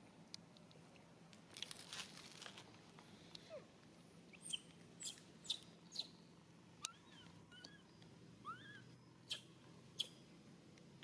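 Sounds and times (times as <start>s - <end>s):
rustle of dry leaf litter: 1.5s - 3.3s
small animal chirps: 4.3s - 6.2s, 8.4s - 10.2s.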